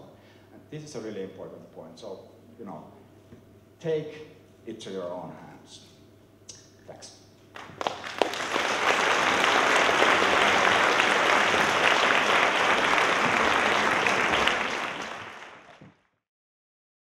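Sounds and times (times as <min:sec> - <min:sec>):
audience applauding: 0:07.6 - 0:16.1.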